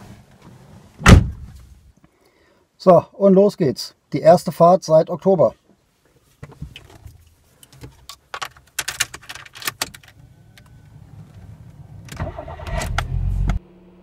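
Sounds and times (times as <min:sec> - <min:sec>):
car starter cranking engine: 0:10.9 - 0:13.6.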